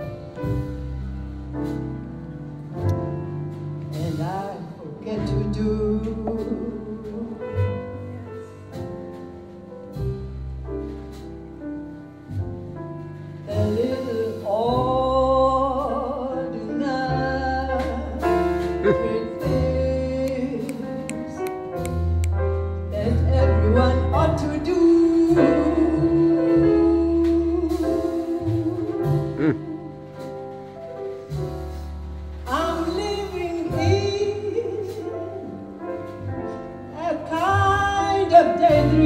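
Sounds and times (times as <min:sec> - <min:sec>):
double bass: 0:00.0 - 0:39.0
drums: 0:00.0 - 0:39.0
piano chords: 0:00.0 - 0:39.0
woman singing with vibrato: 0:13.5 - 0:21.1.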